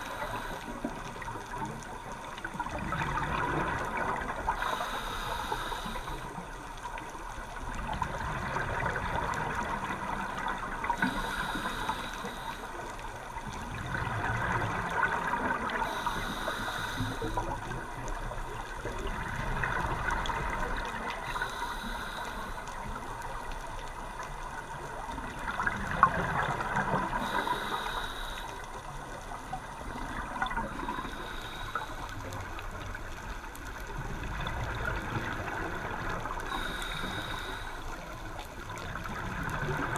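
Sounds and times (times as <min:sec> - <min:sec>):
regulator inhalation hiss: 0:00.0 - 0:01.0, 0:04.5 - 0:06.4, 0:10.9 - 0:13.0, 0:15.8 - 0:17.6, 0:21.2 - 0:23.0, 0:27.1 - 0:28.9, 0:30.8 - 0:32.5, 0:36.5 - 0:38.4
exhaled bubbles gurgling underwater: 0:00.0 - 0:39.9.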